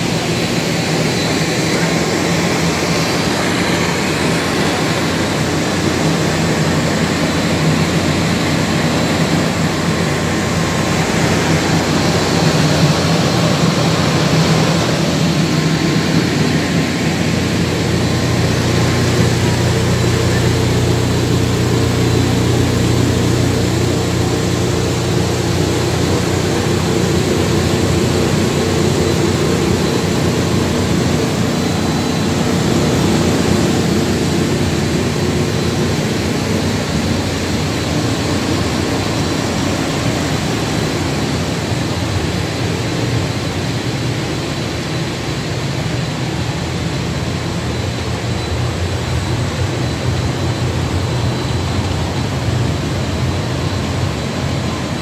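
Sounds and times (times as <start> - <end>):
faint high whine: 0.0 - 55.0
machinery humming and whirring: 0.0 - 55.0.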